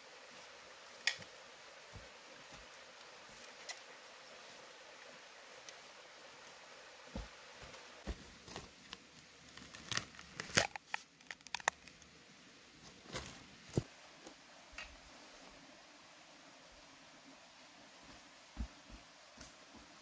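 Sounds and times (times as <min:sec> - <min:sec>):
clicks and crinkles of handling: 0:08.0 - 0:12.0.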